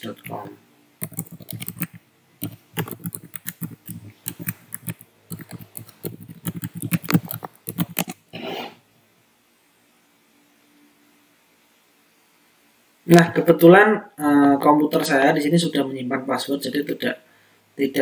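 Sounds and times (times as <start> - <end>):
keyboard typing: 0.0 - 8.2.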